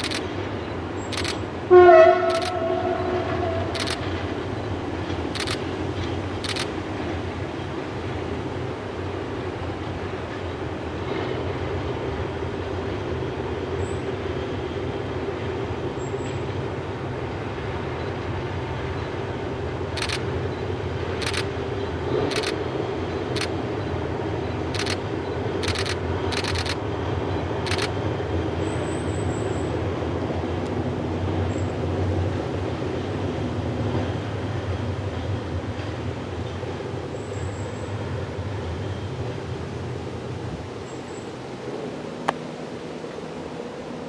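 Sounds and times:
sharp clicks from wheels and rails: 0:00.0 - 0:07.9, 0:19.9 - 0:26.9, 0:27.6 - 0:28.1
distant diesel train drone: 0:00.0 - 0:44.0.

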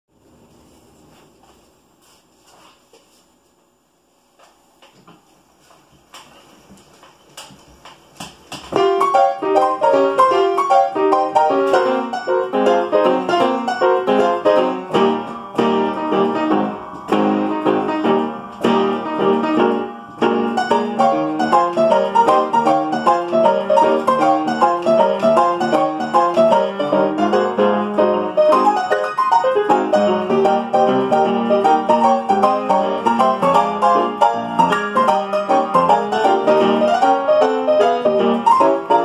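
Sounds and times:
player piano brisk tune: 0:08.6 - 0:39.0.

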